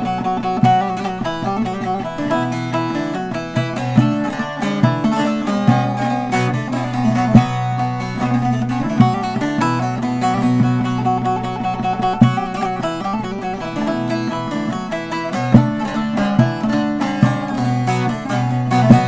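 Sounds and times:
plucked lute melody with drone: 0.0s - 19.0s.

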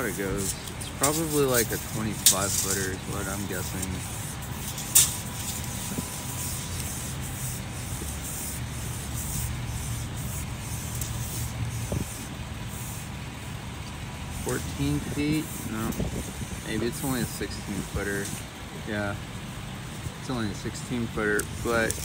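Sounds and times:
tape measure being pulled out: 0.0s - 8.6s, 21.3s - 22.0s
low vehicle rumble: 0.0s - 22.0s
tape measure click: 4.6s - 5.7s.

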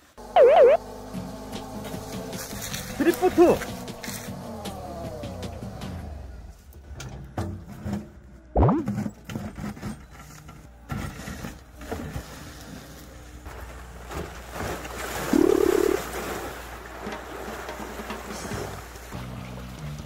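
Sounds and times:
diesel engine running: 0.0s - 7.4s, 15.2s - 20.0s
loud whine: 0.2s - 0.8s
water sloshing: 13.5s - 19.9s.

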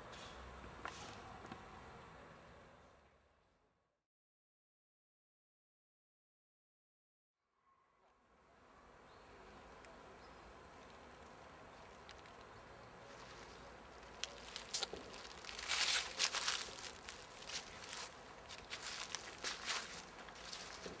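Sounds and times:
footsteps through dry leaves: 13.1s - 21.0s.

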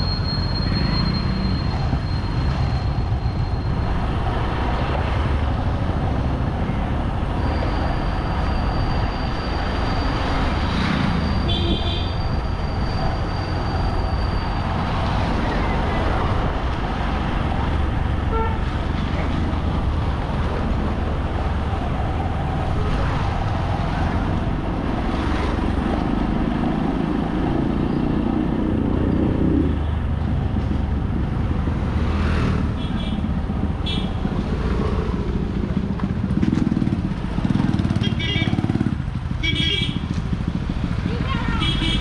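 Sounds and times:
wind and road noise: 0.0s - 42.0s
motorcycle horn toots: 11.5s - 12.2s, 38.0s - 38.6s, 39.4s - 40.0s, 41.5s - 42.0s.

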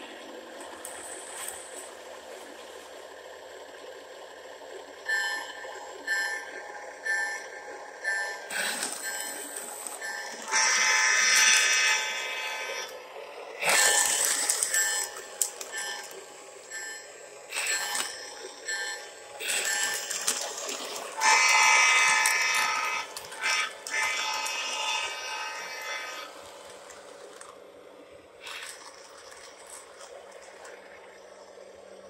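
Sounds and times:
toy train horn blast: 10.0s - 12.4s.

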